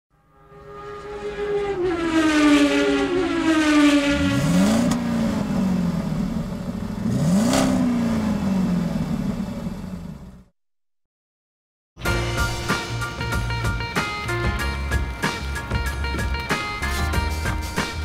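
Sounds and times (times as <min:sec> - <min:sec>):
car engine revving: 0:00.5 - 0:10.5.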